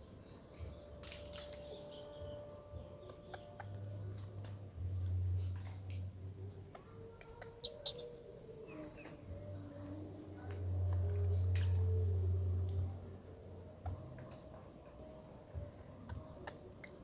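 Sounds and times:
monkey high-pitched squeaks: 7.6s - 8.2s, 11.1s - 11.8s.

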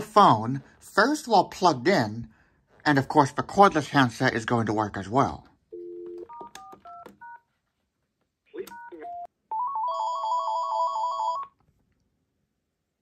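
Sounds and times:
keypad touch-tones: 5.8s - 7.4s
dial tone: 8.9s - 11.5s
electronic warbling phone ring: 9.5s - 11.5s.

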